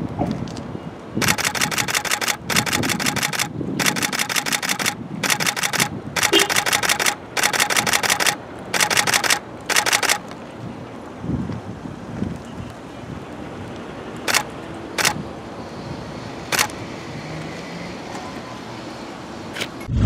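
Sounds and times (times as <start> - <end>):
camera shutter bursts: 1.2 - 10.2, 14.3 - 15.2, 16.5 - 16.8.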